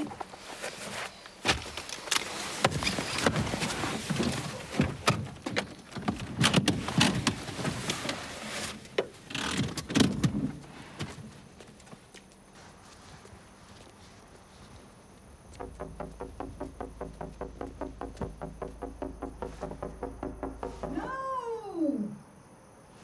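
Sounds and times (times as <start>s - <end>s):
knocks against car seats: 15.6s - 21.2s
short clicks and thumps: 15.6s - 21.2s.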